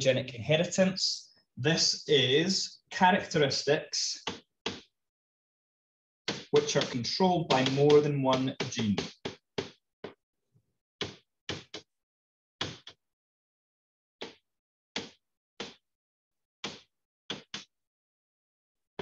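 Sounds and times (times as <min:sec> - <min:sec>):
stylus tapping writing surface: 0:04.2 - 0:04.9, 0:06.3 - 0:10.2, 0:11.0 - 0:11.9, 0:15.0 - 0:15.8.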